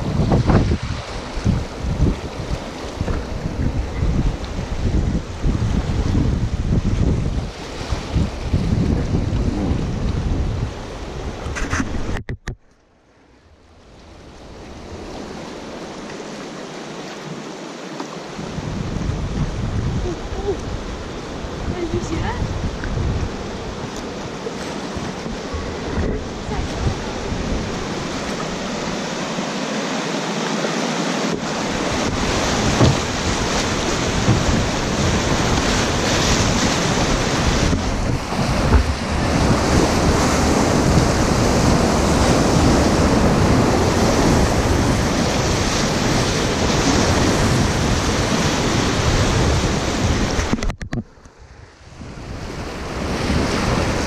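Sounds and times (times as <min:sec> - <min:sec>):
wind rumbling on microphone: 0:00.0 - 0:12.7, 0:18.2 - 0:54.0
whitewater rapids rushing: 0:23.4 - 0:50.5.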